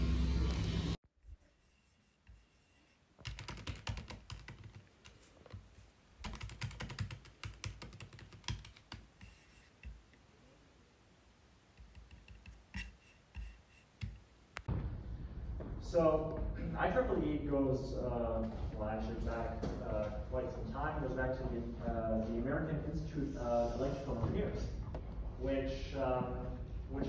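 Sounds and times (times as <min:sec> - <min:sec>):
typing on laptop keyboard: 0:03.2 - 0:05.6, 0:06.2 - 0:10.0, 0:11.8 - 0:14.2.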